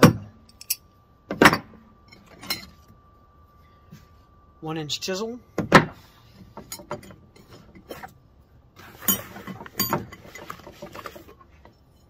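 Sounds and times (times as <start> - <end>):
hand tools clinking: 0.5 - 0.9.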